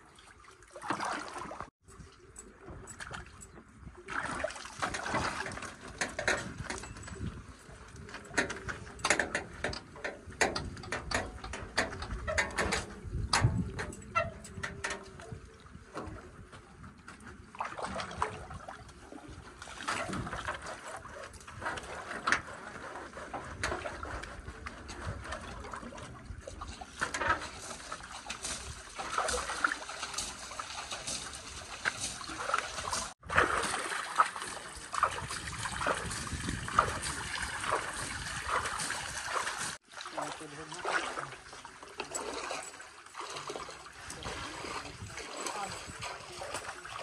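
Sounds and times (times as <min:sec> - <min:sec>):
water splashing on metal bodywork: 0:00.0 - 0:01.7, 0:02.7 - 0:16.2, 0:17.1 - 0:47.0
water trickling and dripping: 0:23.3 - 0:47.0.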